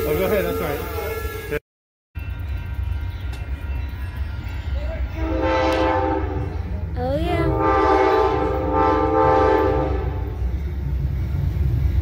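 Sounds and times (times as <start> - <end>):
train air horn blasts: 0.0 - 1.6, 5.1 - 6.7, 7.4 - 10.4.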